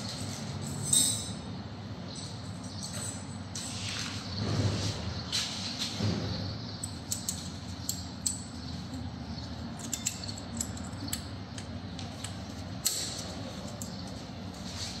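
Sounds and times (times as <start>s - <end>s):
steady low hum: 0.0s - 15.0s
metallic clicks of brake parts: 6.8s - 14.6s.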